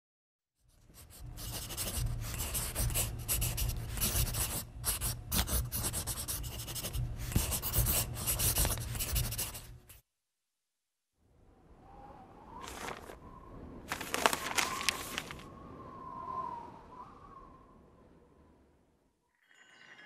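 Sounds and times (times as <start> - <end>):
pen scratching on paper: 0.7 - 10.0.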